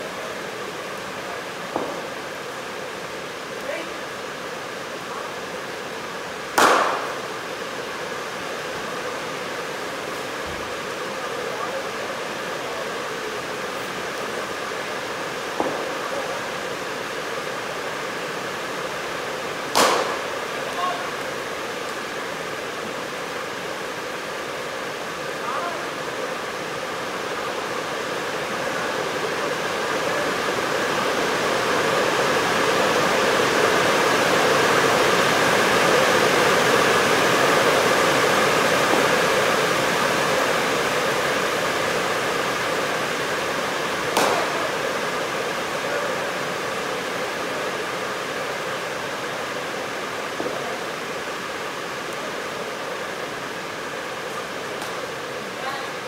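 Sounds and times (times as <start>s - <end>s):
faint steady hums: 0.0s - 56.0s
steady rushing noise: 0.0s - 56.0s
sharp crack: 6.6s - 7.4s, 19.7s - 20.8s, 44.1s - 44.8s, 54.8s - 55.0s.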